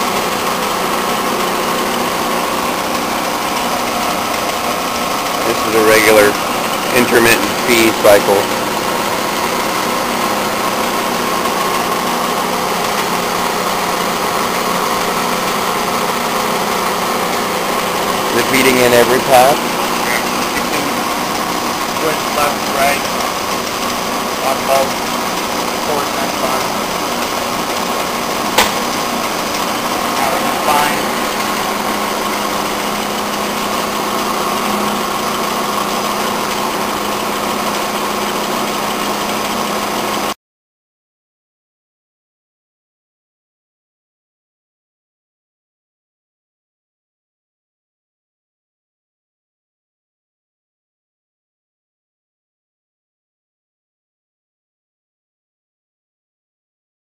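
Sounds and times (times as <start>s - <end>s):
grinder machine hum: 0.0s - 40.4s.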